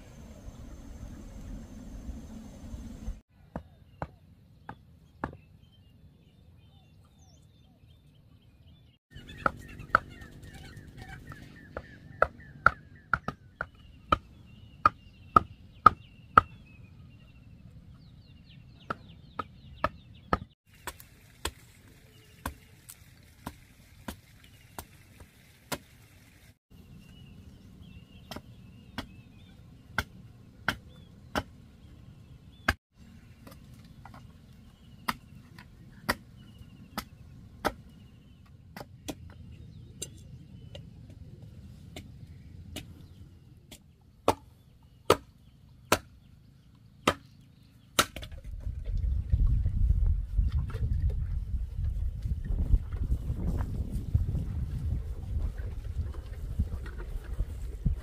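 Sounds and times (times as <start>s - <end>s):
machete chopping bamboo: 43.7s - 44.5s, 45.1s - 46.2s, 47.0s - 47.3s, 48.0s - 48.3s.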